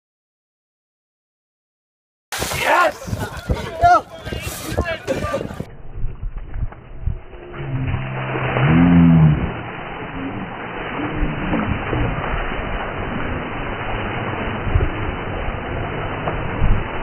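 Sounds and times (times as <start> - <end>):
water pouring and splashing: 2.3 - 3.7, 7.4 - 17.0.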